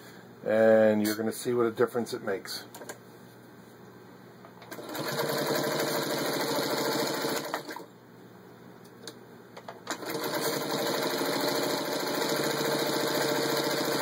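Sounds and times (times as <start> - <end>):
sewing machine stitching: 4.7 - 7.9, 9.9 - 14.0.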